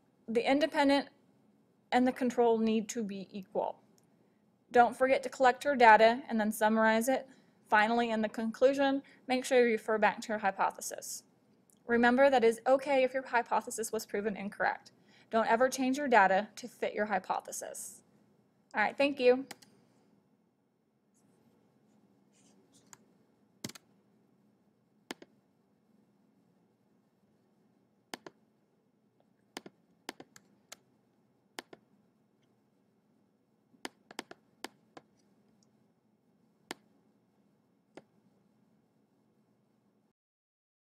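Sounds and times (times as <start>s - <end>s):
faint room hiss: 0.0s - 40.1s
computer mouse clicks: 19.4s - 19.8s, 22.4s - 23.9s, 25.1s - 25.4s, 28.1s - 28.4s, 29.2s - 30.9s, 31.6s - 32.6s, 33.8s - 35.7s, 36.7s - 36.9s, 37.9s - 38.1s.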